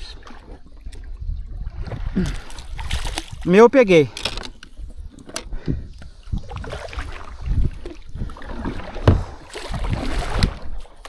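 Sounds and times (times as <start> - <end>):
knocks on kayak hull: 9.0 - 9.3.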